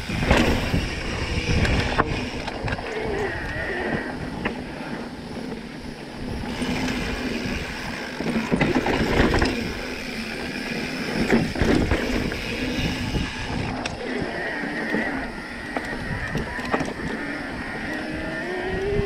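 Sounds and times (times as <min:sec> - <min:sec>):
bike clattering over bumps: 0:00.0 - 0:03.1, 0:03.8 - 0:14.0
bike tyre noise on dirt: 0:00.0 - 0:19.0
wind rumbling on microphone: 0:00.0 - 0:19.0.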